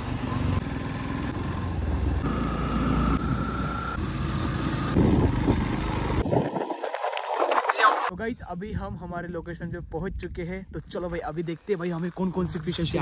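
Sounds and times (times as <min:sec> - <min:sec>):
motorcycle engine rumble: 0:00.0 - 0:07.4.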